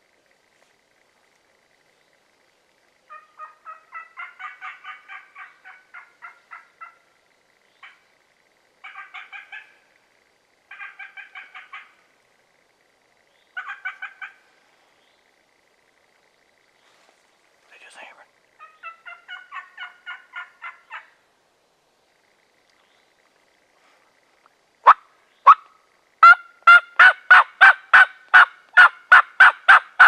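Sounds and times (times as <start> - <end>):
wild turkey calling: 3.0 - 8.2, 8.8 - 10.1, 10.7 - 12.2, 13.3 - 17.1, 17.8 - 21.2, 22.3 - 30.0.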